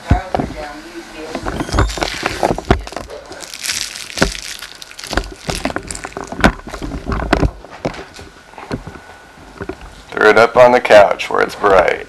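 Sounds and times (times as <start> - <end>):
cellophane wrapper crinkling: 1.4 - 7.4.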